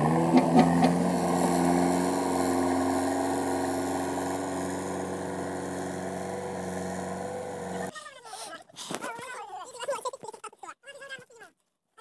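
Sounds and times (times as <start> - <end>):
diesel engine running: 0.0 - 7.9.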